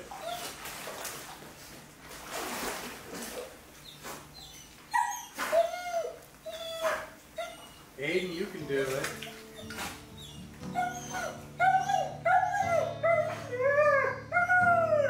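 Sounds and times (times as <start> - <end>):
dog whimpering and yipping: 0.0 - 0.7, 3.8 - 8.4, 9.2 - 15.0.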